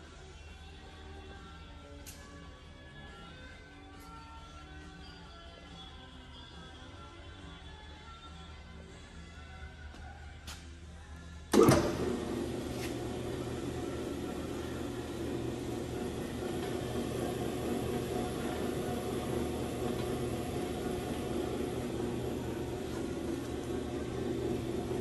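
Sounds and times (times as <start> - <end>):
mixer motor humming: 11.6 - 25.0.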